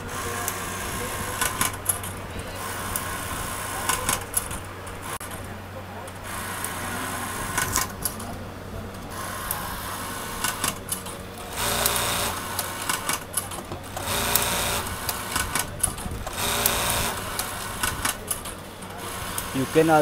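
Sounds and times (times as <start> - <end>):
sewing machine stitching with clicks: 10.4 - 18.6.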